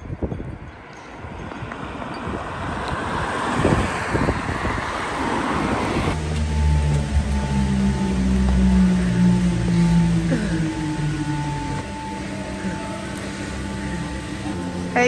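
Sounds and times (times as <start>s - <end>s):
wind on microphone: 0.0s - 6.2s
cars passing on wet road: 0.8s - 15.0s
background music: 6.2s - 15.0s.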